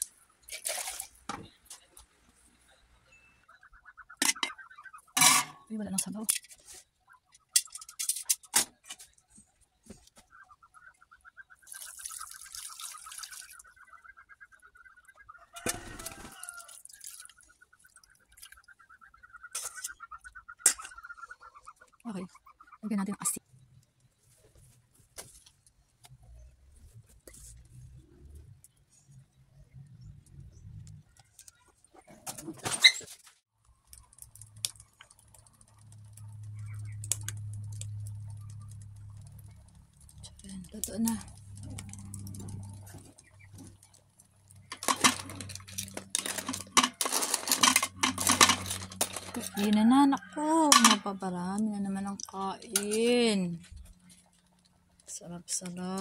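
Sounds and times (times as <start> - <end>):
metal pot clattering: 5.2 - 6.5, 44.6 - 49.7, 50.6 - 51.1
wood fire crackling: 33.6 - 49.4.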